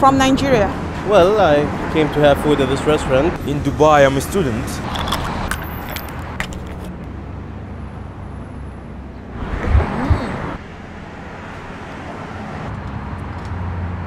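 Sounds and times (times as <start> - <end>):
cars passing on street: 0.0 - 14.0
bottle cap twisted open: 4.8 - 6.9
rush with low thumps: 9.4 - 10.6.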